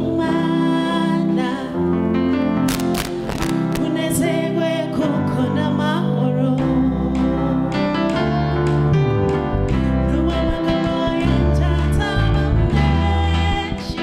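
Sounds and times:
woman singing lead on microphone: 0:00.0 - 0:02.1, 0:03.3 - 0:08.0, 0:10.0 - 0:14.0
instrumental backing: 0:00.0 - 0:14.0
gospel choir singing: 0:10.2 - 0:14.0.

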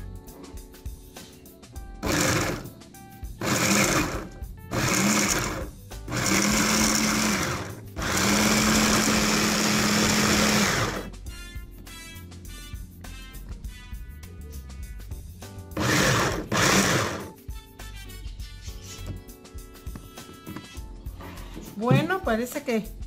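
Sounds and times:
electric food chopper chopping: 0:02.0 - 0:02.7, 0:03.4 - 0:11.1, 0:15.8 - 0:17.3.

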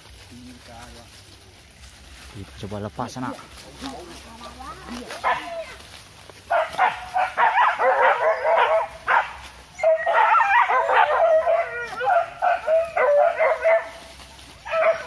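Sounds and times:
dogs yelping and whining: 0:06.5 - 0:14.0, 0:14.6 - 0:15.0.

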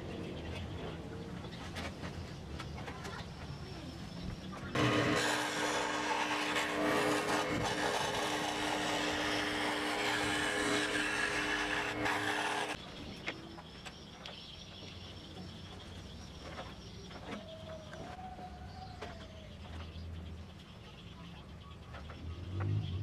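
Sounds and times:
scroll saw cutting plywood: 0:04.7 - 0:12.8.

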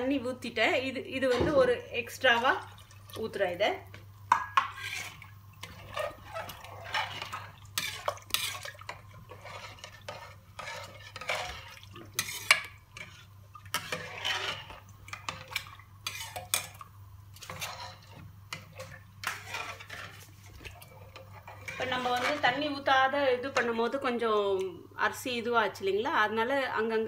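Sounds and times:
metal spoon stirring in metal pot: 0:04.3 - 0:24.1.

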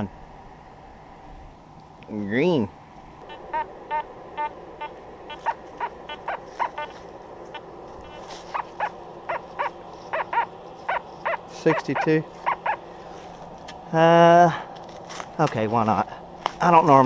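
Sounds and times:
dog yapping: 0:05.3 - 0:06.9, 0:08.1 - 0:12.8.

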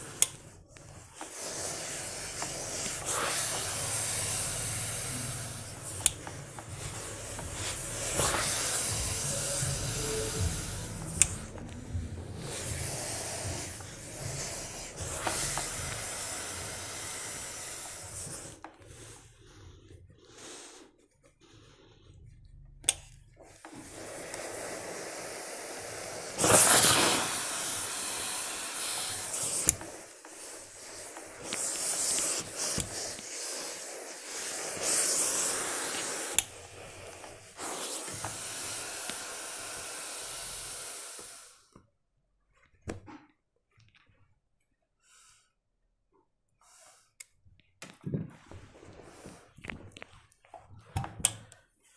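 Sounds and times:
steam iron hissing: 0:00.0 - 0:19.7, 0:23.4 - 0:41.7.

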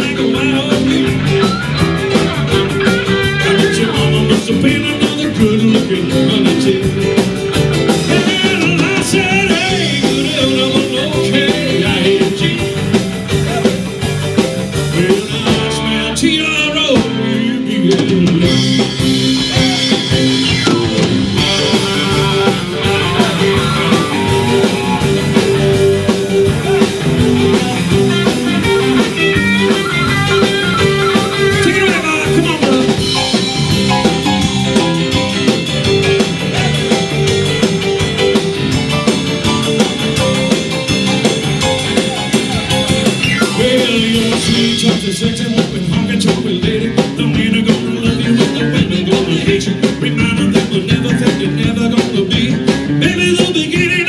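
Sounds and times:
man singing into microphone: 0:00.0 - 0:01.5, 0:03.2 - 0:07.3, 0:07.9 - 0:13.8, 0:14.8 - 0:20.3, 0:21.4 - 0:25.1, 0:30.8 - 0:33.4, 0:43.4 - 0:54.0
blues-rock band playing: 0:00.0 - 0:54.0.

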